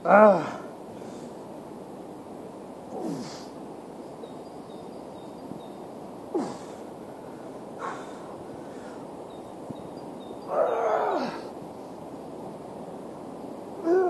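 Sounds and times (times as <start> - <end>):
man grunting and exhaling hard: 0.0 - 0.7.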